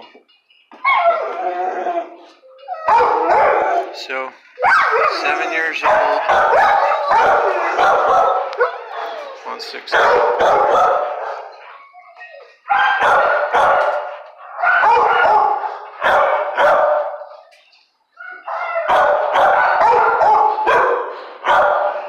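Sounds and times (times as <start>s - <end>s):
dog barking: 2.9s - 3.9s, 4.6s - 9.1s, 9.9s - 11.6s, 12.7s - 17.4s, 18.6s - 22.0s.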